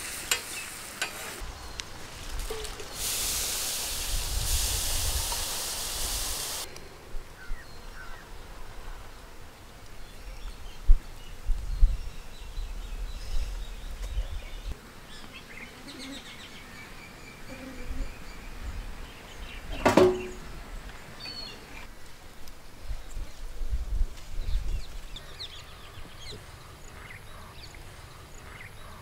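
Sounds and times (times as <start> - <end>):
food sizzling in hot oil: 2.5 - 6.7
birds chirping: 5.4 - 21.9, 24.4 - 29.0.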